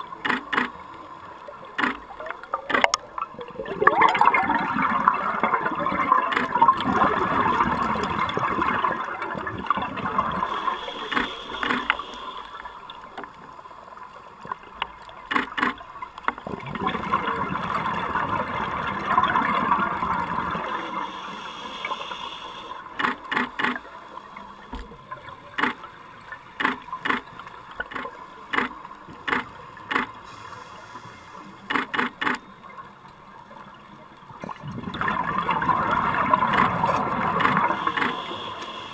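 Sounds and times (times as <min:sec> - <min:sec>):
regulator bubbles underwater: 0:00.0 - 0:31.6, 0:32.4 - 0:38.9
underwater camera clicks: 0:00.2 - 0:00.8, 0:01.8 - 0:03.0, 0:11.1 - 0:12.1, 0:15.3 - 0:16.4, 0:25.6 - 0:25.8, 0:26.6 - 0:27.3, 0:27.9 - 0:30.2, 0:31.7 - 0:32.4.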